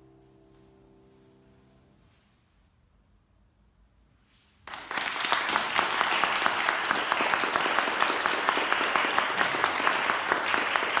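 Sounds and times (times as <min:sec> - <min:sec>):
audience applauding: 0:04.6 - 0:11.0
hands clapping in quick rhythm: 0:04.6 - 0:11.0.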